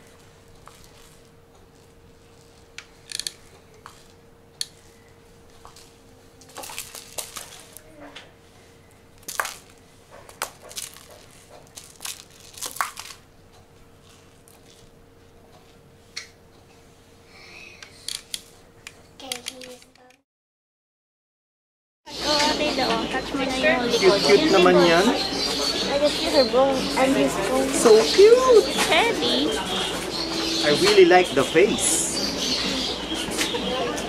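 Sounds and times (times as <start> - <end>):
faint steady hum: 0.0 - 20.2.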